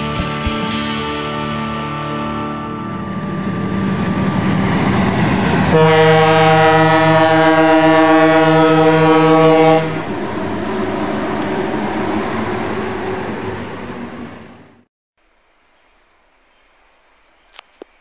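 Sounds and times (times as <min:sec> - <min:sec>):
locomotive engine rumbling: 0:00.0 - 0:14.9
locomotive air horn chord: 0:01.0 - 0:10.2.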